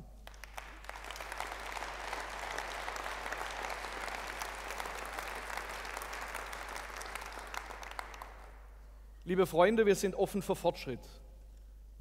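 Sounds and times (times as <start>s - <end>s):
audience applauding: 0.2s - 8.7s.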